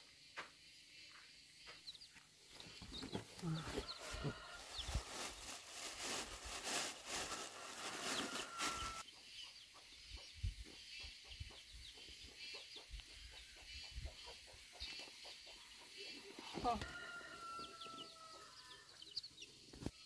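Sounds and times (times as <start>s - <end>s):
chickens clucking: 2.5s - 5.5s, 7.6s - 16.8s.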